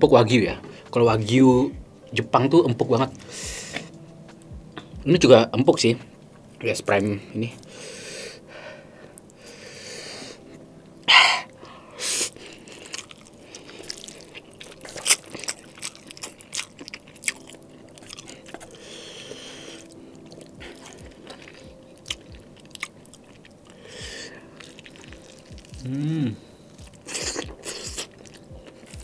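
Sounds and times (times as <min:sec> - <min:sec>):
wet chewing and mouth smacks: 0:12.3 - 0:26.0, 0:26.7 - 0:29.0.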